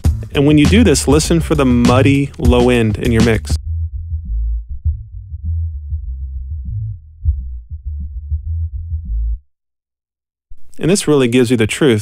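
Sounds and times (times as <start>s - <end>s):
muffled kick drum thumps: 0.0s - 9.4s
low bass line: 0.0s - 9.5s.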